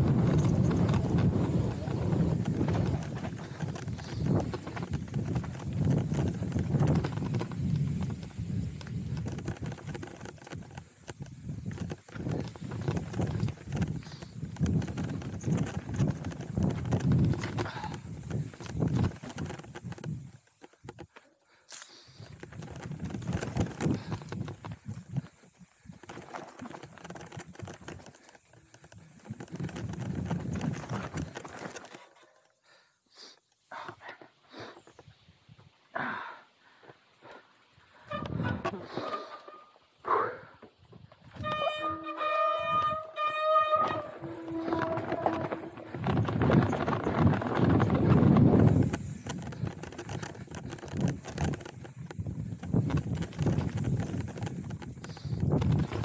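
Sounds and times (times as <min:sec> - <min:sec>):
bike clattering over rocks: 0:00.0 - 0:21.2, 0:22.4 - 0:32.1, 0:44.3 - 0:56.0
tyre rumble: 0:00.0 - 0:21.2, 0:22.4 - 0:32.0, 0:42.6 - 0:56.0.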